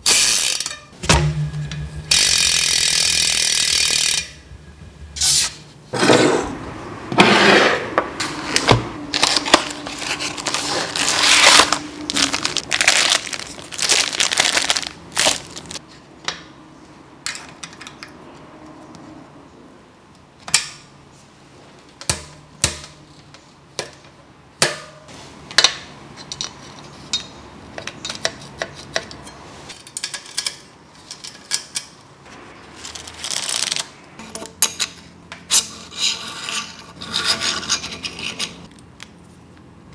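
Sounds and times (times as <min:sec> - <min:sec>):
metal parts and tools handled: 0:26.2 - 0:32.0.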